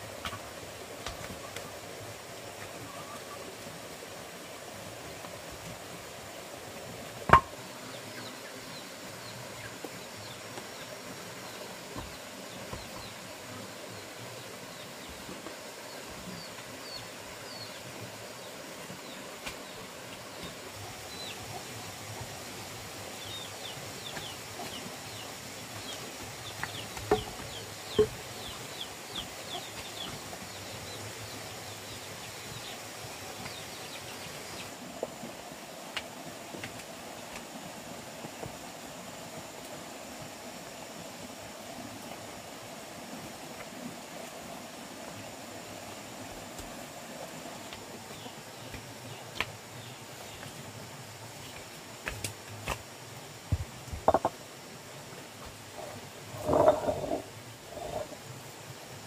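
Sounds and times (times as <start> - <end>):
background hiss: 0.0 - 59.0
small birds chirping: 7.6 - 34.8, 44.6 - 50.6, 55.7 - 58.2.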